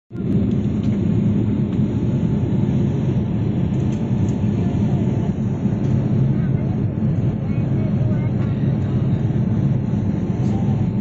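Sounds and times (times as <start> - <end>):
airliner cabin engine noise: 0.1 - 11.0.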